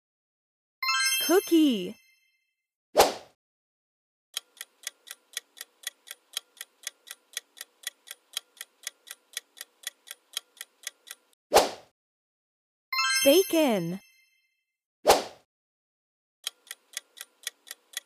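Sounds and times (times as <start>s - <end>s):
clock ticking timer: 4.4s - 11.4s, 16.4s - 18.0s.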